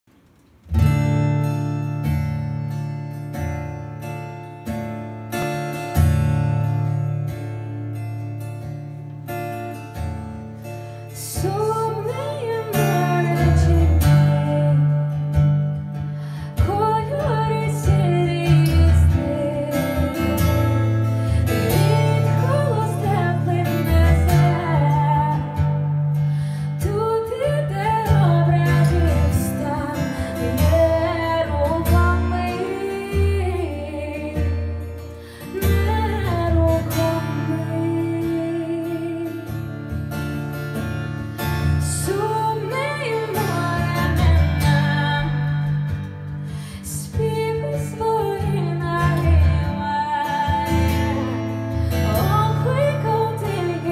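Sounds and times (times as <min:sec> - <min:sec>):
acoustic guitar: 0:00.0 - 0:53.9
woman singing: 0:11.1 - 0:40.4, 0:41.6 - 0:53.9.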